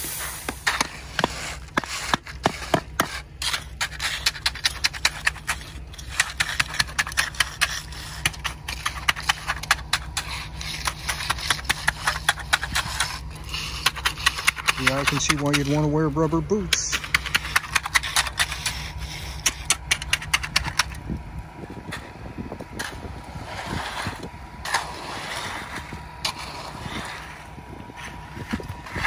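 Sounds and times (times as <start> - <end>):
low steady hum: 0.0 - 29.0
rake scraping wet concrete: 0.0 - 29.0.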